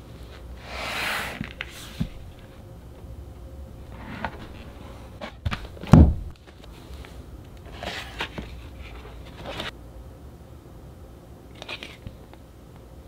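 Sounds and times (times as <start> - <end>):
book scraping in slipcase: 0.6 - 2.5, 3.9 - 5.9, 7.6 - 9.7
heavy book thump: 5.4 - 6.3.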